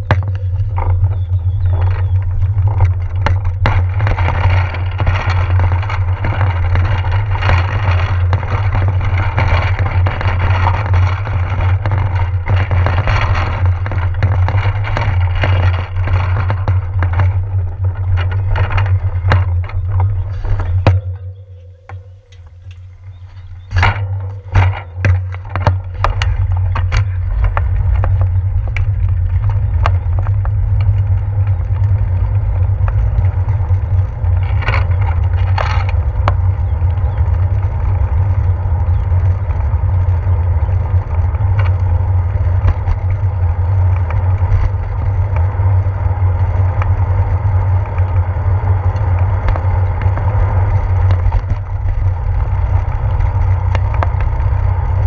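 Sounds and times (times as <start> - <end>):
sharp knocks and clicks: 0.0 - 37.3
wind and road rumble: 0.0 - 55.0.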